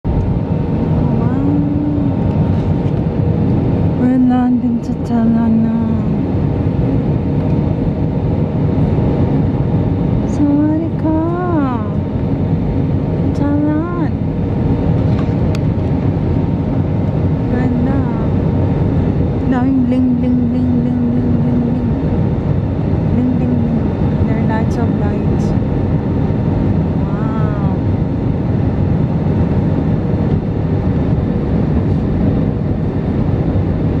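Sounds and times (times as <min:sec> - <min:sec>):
jet airliner cabin noise: 0:00.0 - 0:34.0
person's voice: 0:01.0 - 0:02.2, 0:04.0 - 0:06.2, 0:10.3 - 0:12.0, 0:13.3 - 0:14.2, 0:17.5 - 0:18.3, 0:19.5 - 0:21.9, 0:23.2 - 0:25.5.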